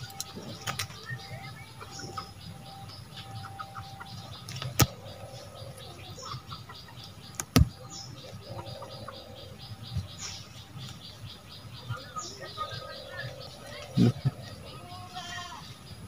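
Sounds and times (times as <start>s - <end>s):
stems snapping: 0.0s - 1.0s, 7.3s - 7.7s
rapid background chirping: 0.0s - 16.0s.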